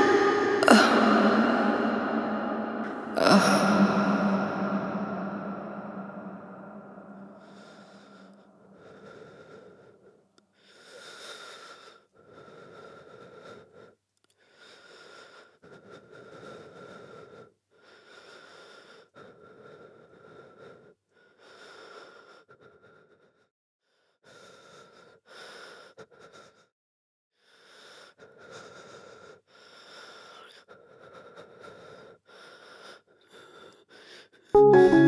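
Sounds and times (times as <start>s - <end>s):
heavy laboured breathing: 0.0s - 26.7s, 27.4s - 34.5s.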